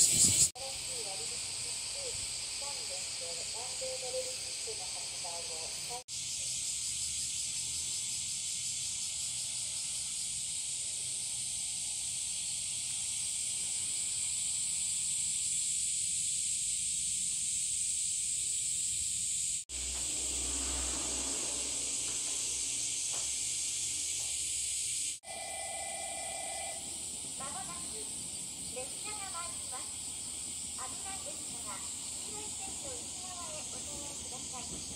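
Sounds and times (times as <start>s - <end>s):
cicadas chorus: 0.0s - 34.9s
low rumble: 19.7s - 24.7s.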